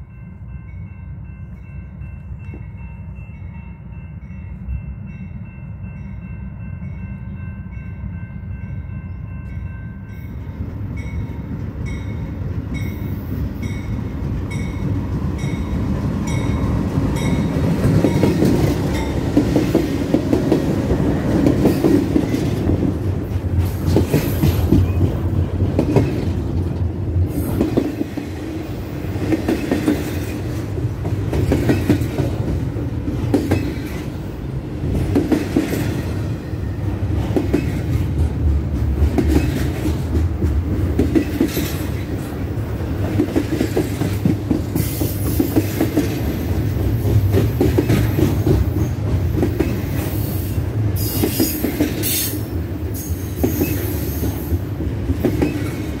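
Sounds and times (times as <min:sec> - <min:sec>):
train wheels clattering: 0:12.8 - 0:34.2, 0:34.8 - 0:56.0.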